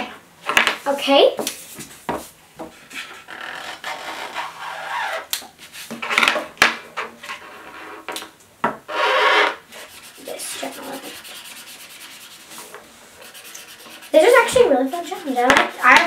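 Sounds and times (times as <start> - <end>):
marker scratching on paper: 9.7 - 16.0
markers knocking on table: 15.4 - 16.0.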